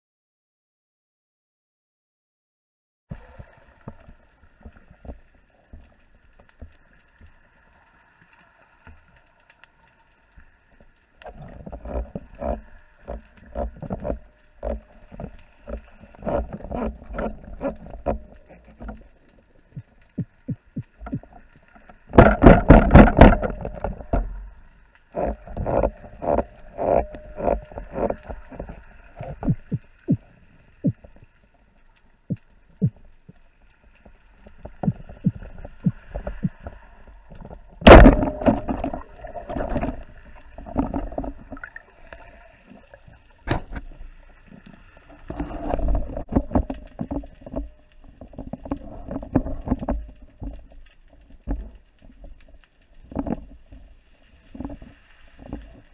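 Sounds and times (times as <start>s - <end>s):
underwater clicks and knocks: 10.4s - 31.4s, 32.0s - 53.9s, 54.5s - 55.9s.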